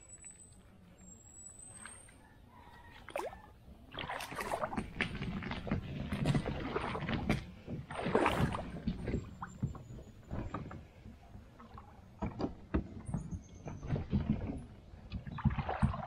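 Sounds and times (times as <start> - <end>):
water sloshing against kayak hull: 1.7 - 16.0
knocks and clicks on hull: 4.0 - 16.0.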